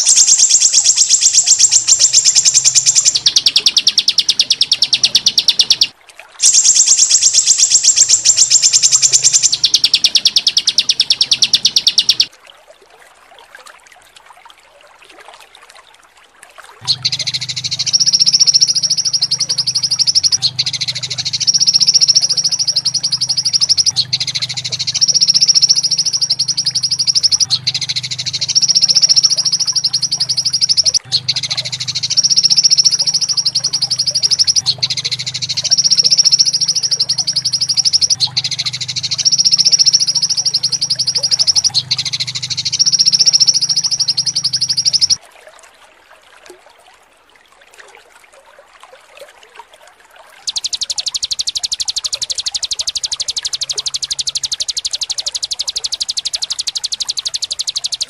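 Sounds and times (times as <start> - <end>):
bird fast rolling trill: 0.0 - 12.3, 16.8 - 45.2, 50.4 - 58.0
bird rattling trill: 0.0 - 12.3, 16.9 - 45.2, 50.4 - 58.0
low pulsing buzz: 16.8 - 45.2.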